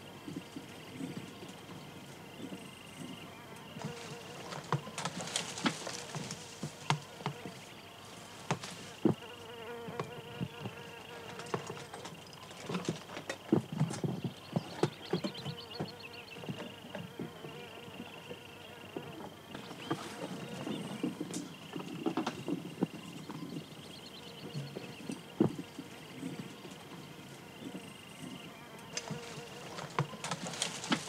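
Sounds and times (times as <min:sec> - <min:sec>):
high insect buzz: 0:02.0 - 0:12.4, 0:24.2 - 0:31.0
boots scraping on rock: 0:03.8 - 0:09.2, 0:29.0 - 0:31.0.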